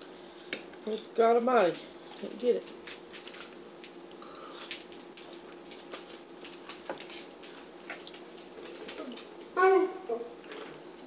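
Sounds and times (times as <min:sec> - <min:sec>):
faint steady hum: 0:00.0 - 0:11.0
quiet chewing: 0:02.0 - 0:09.4.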